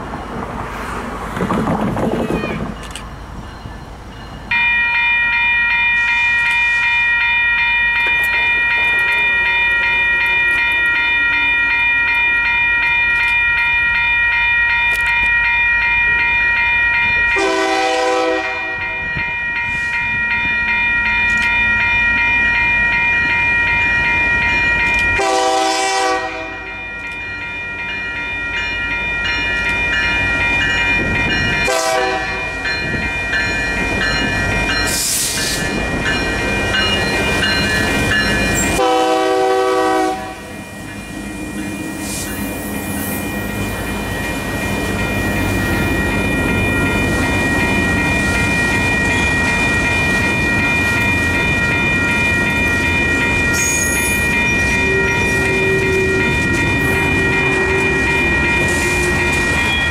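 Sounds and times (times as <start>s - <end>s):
freight train rumble: 0.0s - 59.9s
locomotive air horn blasts: 17.4s - 18.9s, 25.2s - 26.7s, 31.6s - 32.5s, 38.8s - 40.5s.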